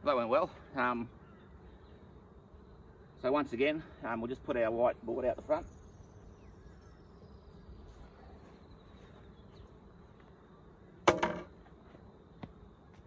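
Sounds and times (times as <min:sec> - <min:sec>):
bees buzzing: 0:00.0 - 0:13.0
board clattering on ground: 0:11.1 - 0:11.6.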